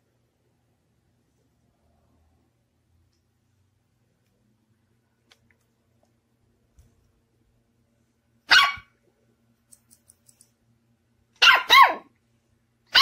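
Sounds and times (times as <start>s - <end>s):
puppy barking: 8.5s - 9.0s, 11.4s - 12.1s.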